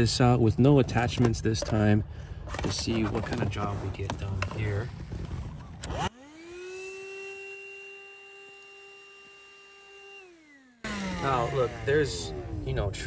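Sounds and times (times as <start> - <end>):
clattering handling noise: 0.8 - 5.6
handheld vacuum motor whining: 5.6 - 13.0.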